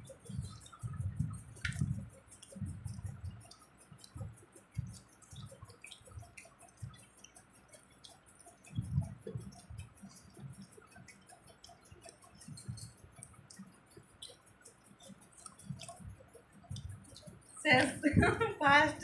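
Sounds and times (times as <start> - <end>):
soft low thumps: 0.0 - 7.0, 8.7 - 10.8, 15.6 - 19.0
wet chewing: 0.0 - 18.1
small clicks: 0.0 - 19.0.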